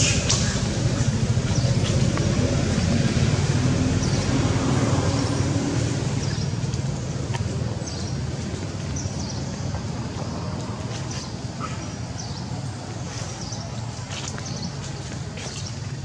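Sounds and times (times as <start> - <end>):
low mechanical rumble: 0.0 - 11.5.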